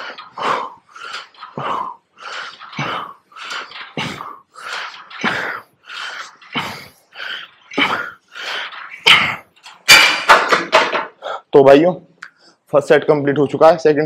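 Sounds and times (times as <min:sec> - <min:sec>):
man breathing hard: 0:00.0 - 0:09.6.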